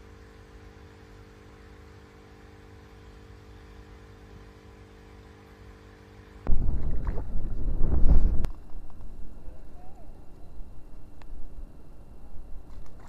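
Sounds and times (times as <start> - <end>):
faint hum with held tones: 0.0 - 13.0
wind buffeting microphone: 6.5 - 9.5.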